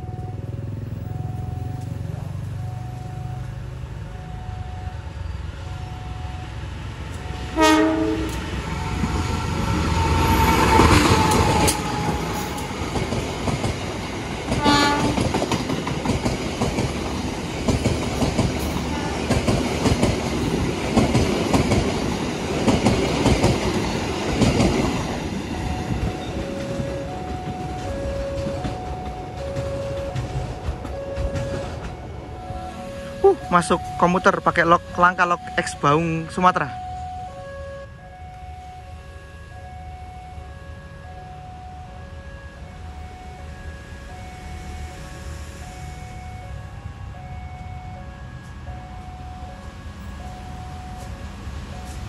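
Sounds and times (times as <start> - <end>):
diesel locomotive horn blasts: 4.4 - 12.9, 14.5 - 15.4
train wheels clickety-clack: 7.1 - 32.2, 50.7 - 52.0.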